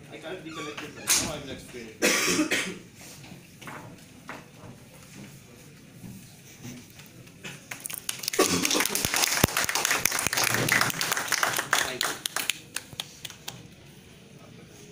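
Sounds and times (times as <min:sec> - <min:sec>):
small audience clapping: 0:07.4 - 0:13.7.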